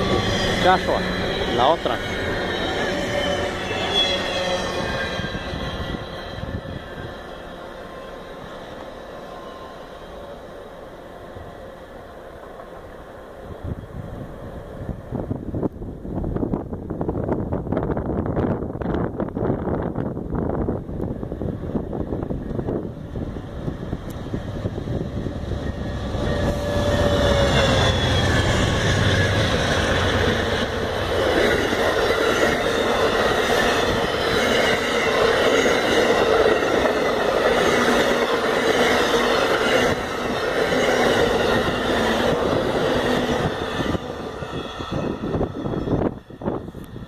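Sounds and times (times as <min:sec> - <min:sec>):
ringing tone from wheels: 0:00.0 - 0:11.2
train wheels rushing on rails: 0:00.0 - 0:47.0.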